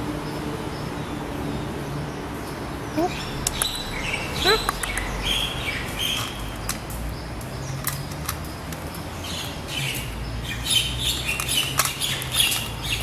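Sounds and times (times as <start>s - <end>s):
cat crunching dry kibble: 11.1s - 13.0s.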